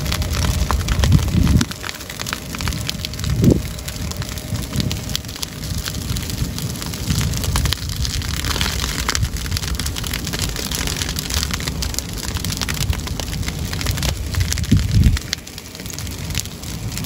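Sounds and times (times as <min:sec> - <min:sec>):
grass fire crackling and popping: 0:00.0 - 0:17.0
low rumble: 0:00.0 - 0:17.0.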